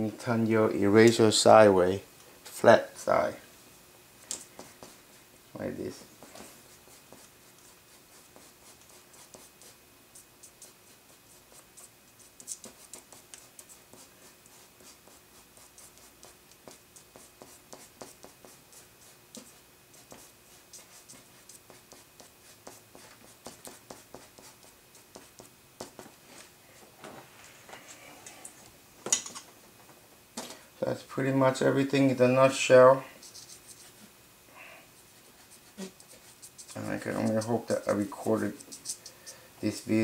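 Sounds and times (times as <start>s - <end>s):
eraser scratching on paper: 6.2s - 26.0s, 33.2s - 34.1s, 35.0s - 39.4s.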